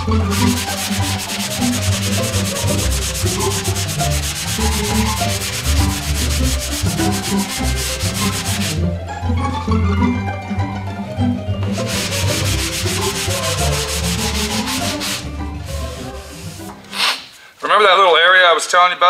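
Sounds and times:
sanding block rasping on filler: 0.2s - 8.8s, 11.7s - 17.2s.

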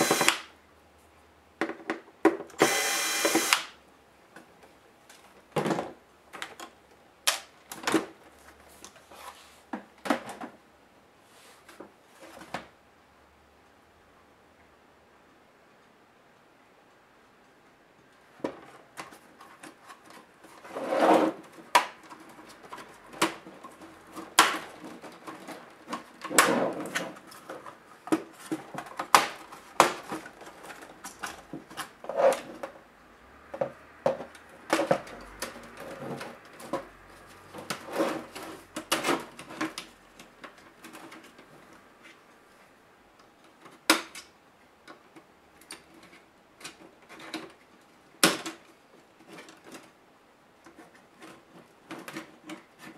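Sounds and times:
plastic scraping: 18.6s - 32.8s, 33.6s - 42.2s.

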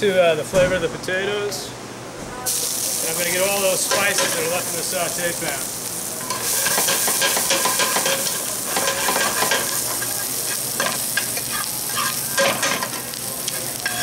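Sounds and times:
onions sizzling in oil: 2.5s - 14.0s
tongs scraping pan: 6.2s - 13.0s.

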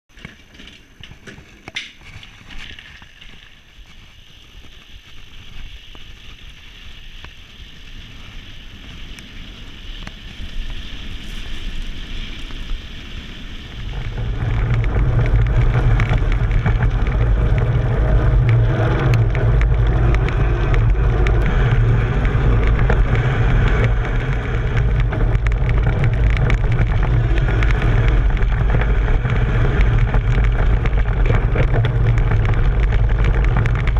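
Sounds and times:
wind and bike tyre rumble: 0.1s - 33.9s
rattles and clicks in train car: 13.8s - 33.9s.

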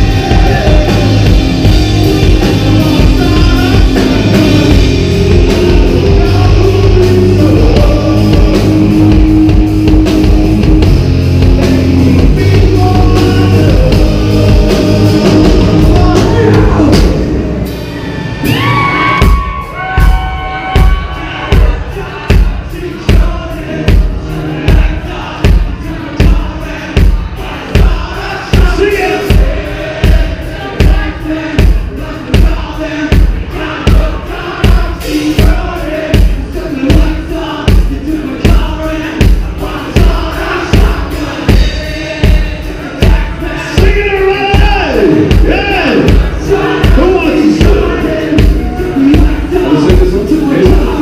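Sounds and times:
heavy kick drum beat: 0.0s - 17.6s, 18.6s - 51.0s
live rock band playing: 0.0s - 51.0s
crowd shouting along: 17.8s - 36.5s, 39.4s - 51.0s.

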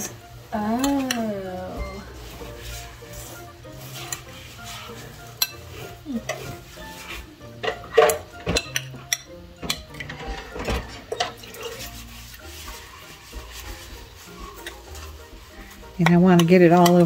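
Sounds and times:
fingers rubbing in sugar: 2.2s - 7.4s, 11.5s - 16.7s.

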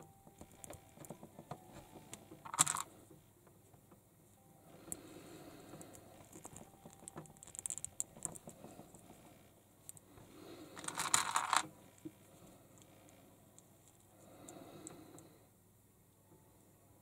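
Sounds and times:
plastic toy parts clicking: 2.1s - 2.9s, 5.9s - 8.6s, 10.8s - 11.7s
plastic packaging rustle: 10.8s - 11.7s.

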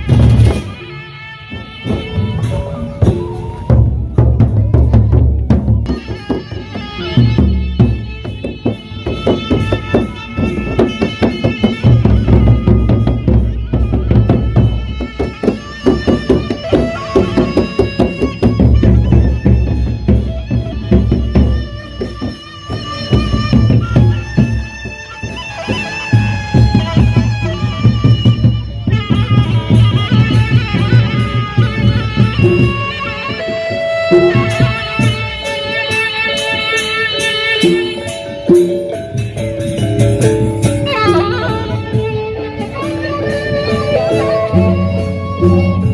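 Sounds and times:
high held melody: 0.0s - 45.9s
hand cymbals clashing: 33.9s - 45.9s.

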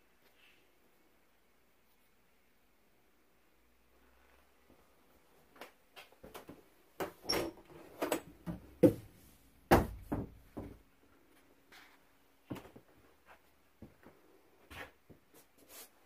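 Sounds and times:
door knocks and clunks: 9.7s - 10.8s.

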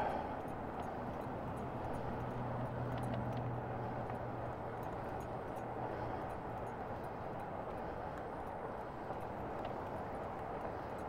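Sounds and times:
low steady hum: 0.0s - 6.3s
wind and road noise: 0.0s - 11.0s.

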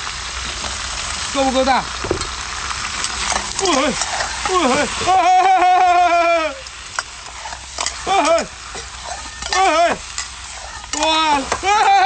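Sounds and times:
food sizzling: 0.0s - 12.0s
metal ladle scraping wok: 3.0s - 4.8s, 6.9s - 11.6s.

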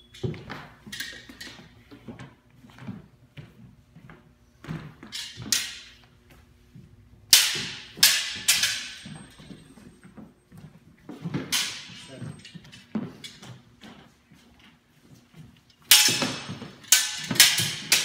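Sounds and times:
swords clashing: 7.3s - 9.2s, 11.5s - 12.1s, 15.9s - 18.0s.

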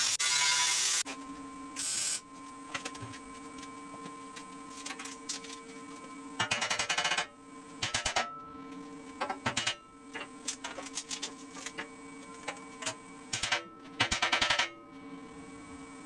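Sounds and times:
welding arc crackling: 0.0s - 1.0s, 1.8s - 2.2s
steady welder hum: 0.0s - 16.0s.

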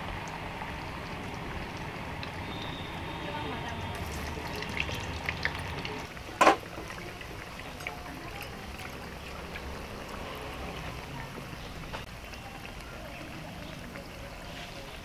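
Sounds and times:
deep-frying sizzle: 0.0s - 15.0s.

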